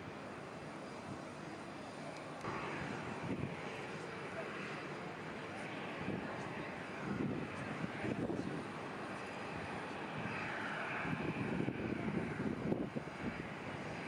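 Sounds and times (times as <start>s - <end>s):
airliner jet engines running: 0.0s - 14.0s.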